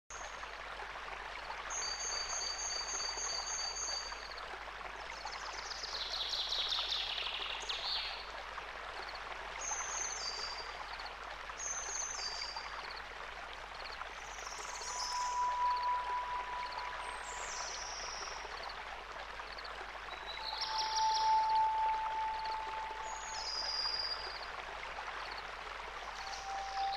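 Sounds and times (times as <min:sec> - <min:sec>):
stream rushing: 0:14.1 - 0:26.9
birds singing and calling: 0:14.5 - 0:18.3, 0:20.2 - 0:24.4, 0:26.1 - 0:26.9.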